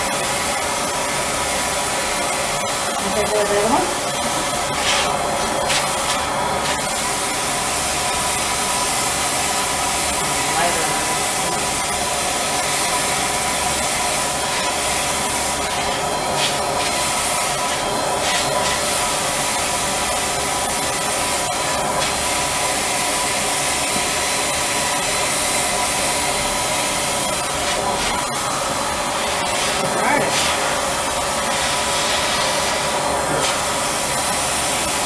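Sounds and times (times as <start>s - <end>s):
spray machine hiss and motor whine: 0.0s - 35.0s.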